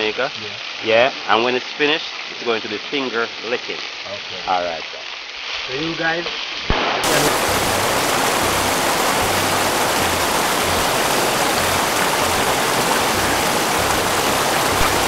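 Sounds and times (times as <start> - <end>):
river water rushing: 7.0 - 15.0.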